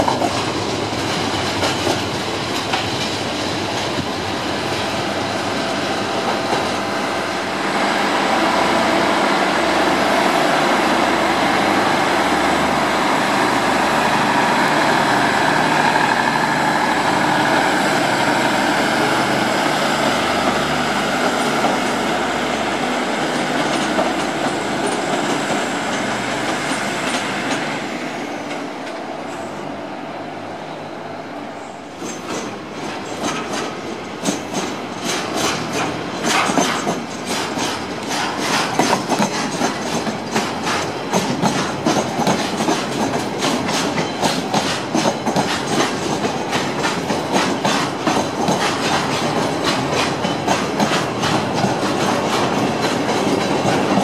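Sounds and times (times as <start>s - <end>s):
train wheels clanking over rail joints: 0.0s - 7.0s, 11.4s - 27.8s, 31.9s - 54.0s
diesel train engine droning: 3.4s - 33.1s.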